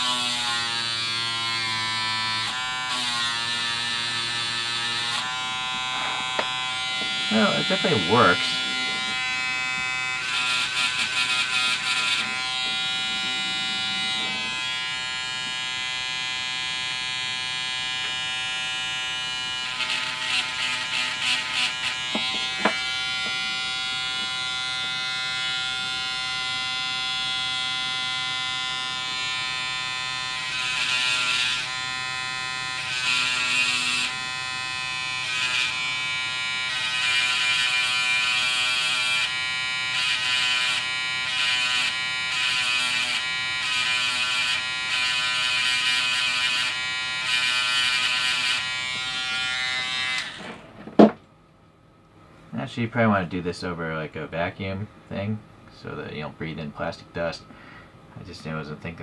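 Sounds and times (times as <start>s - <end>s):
electric sander running: 0.0s - 51.2s
sander grinding plastic: 2.4s - 15.8s, 19.8s - 25.0s, 46.7s - 51.2s.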